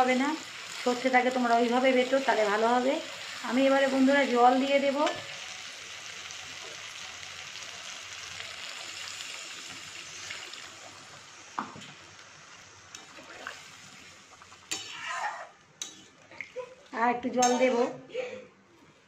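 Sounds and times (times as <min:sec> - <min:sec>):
water hissing in hot pan: 0:00.0 - 0:16.0
metal spatula clattering on pan: 0:14.7 - 0:15.0, 0:15.8 - 0:16.1, 0:17.4 - 0:17.8.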